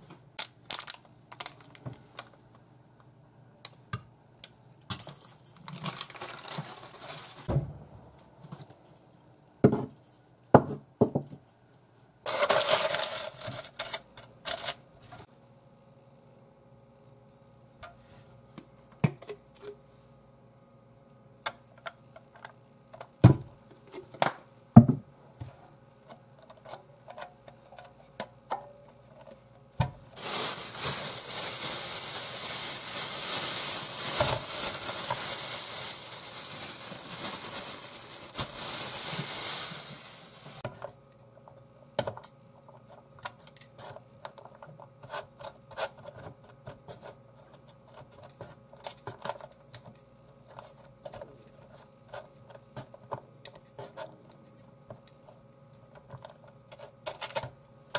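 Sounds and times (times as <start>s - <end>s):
steady hissing rustling noise: 5.7s - 9.4s, 30.1s - 40.7s.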